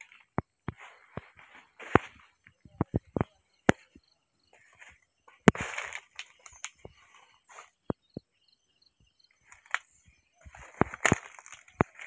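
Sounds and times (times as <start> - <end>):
insect chirring: 1.8 - 12.0
footsteps rustling leaves: 4.8 - 7.8, 10.4 - 12.0.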